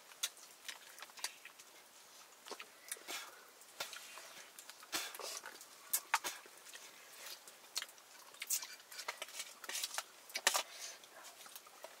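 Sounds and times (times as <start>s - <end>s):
small clicks and rustles: 3.7s - 12.0s.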